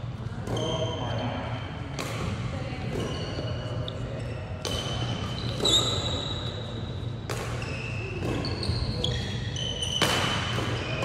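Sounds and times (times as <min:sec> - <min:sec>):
rackets hitting shuttlecock: 0:01.9 - 0:03.5, 0:04.6 - 0:11.0
shoes squeaking on wooden floor: 0:07.6 - 0:10.1.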